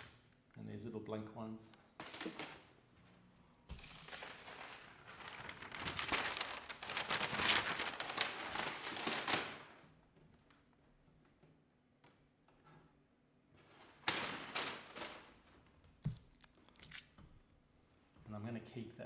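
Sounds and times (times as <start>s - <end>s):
paper rustling and crinkling: 2.0s - 10.7s, 13.6s - 17.2s.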